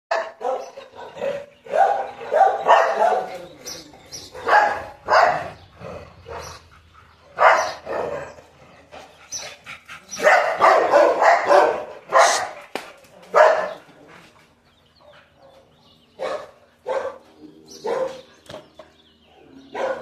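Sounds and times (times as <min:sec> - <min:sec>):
dogs barking: 0:00.1 - 0:20.0.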